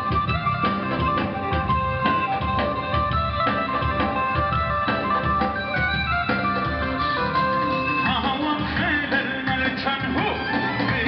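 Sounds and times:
instrumental accompaniment: 0:00.0 - 0:11.0
man singing into a microphone: 0:08.0 - 0:11.0.

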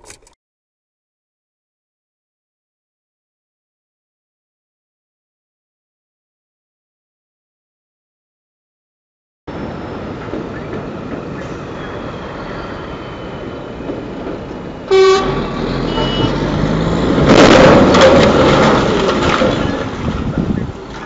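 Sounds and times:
heavy truck rattling past: 0:09.5 - 0:21.0
street traffic: 0:09.5 - 0:21.0
vehicle horn toot: 0:14.9 - 0:16.5.

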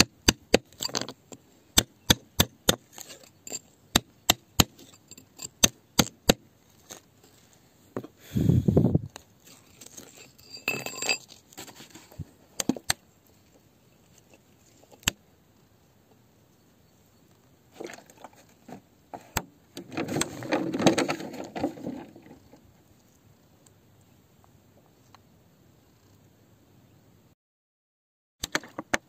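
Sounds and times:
metal rod scraping on rock: 0:00.6 - 0:01.4, 0:02.1 - 0:06.1, 0:09.4 - 0:12.2
stone scraping and rubbing: 0:02.7 - 0:03.9, 0:04.6 - 0:05.7, 0:09.4 - 0:12.2
ringing metallic clink: 0:10.3 - 0:11.3.

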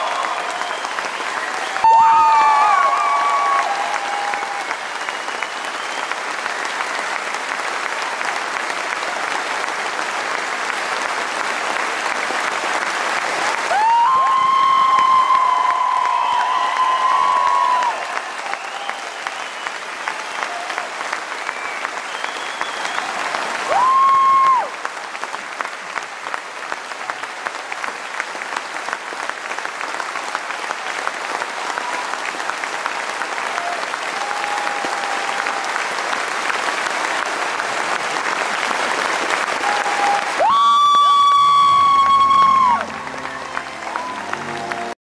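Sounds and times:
audience applauding: 0:00.0 - 0:45.0
loud held high note: 0:41.3 - 0:45.0.

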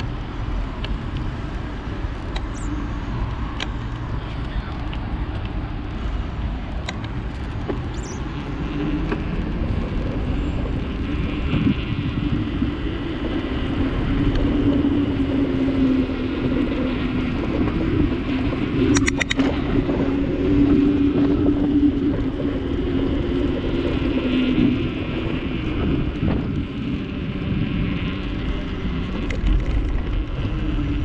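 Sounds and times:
bicycle tyres rolling: 0:00.0 - 0:31.0
low hum: 0:00.0 - 0:31.0
wind on microphone: 0:00.0 - 0:31.0
sharp ticks: 0:02.1 - 0:06.0, 0:18.9 - 0:19.6.

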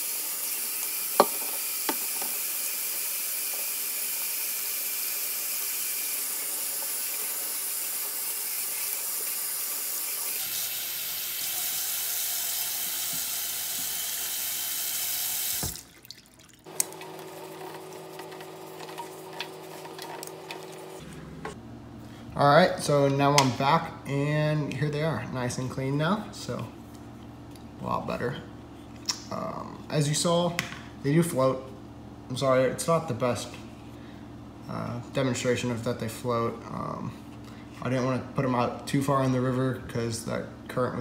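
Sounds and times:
faucet running into steel sink: 0:00.0 - 0:17.1.

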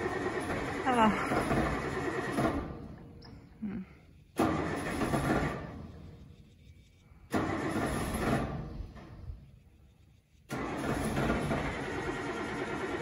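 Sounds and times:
truck engine cranking: 0:00.0 - 0:03.4, 0:04.2 - 0:06.2, 0:07.2 - 0:09.6, 0:10.3 - 0:13.0.

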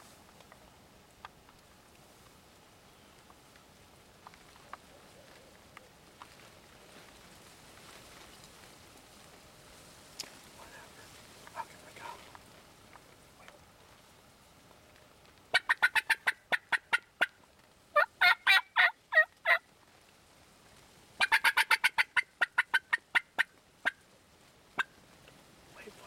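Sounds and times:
turkeys gobbling: 0:15.5 - 0:19.7, 0:21.2 - 0:24.1.

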